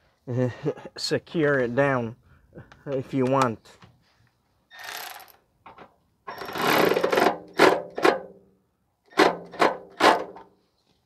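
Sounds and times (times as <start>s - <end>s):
ratchet wrench clicking: 4.7s - 5.4s, 6.3s - 7.3s.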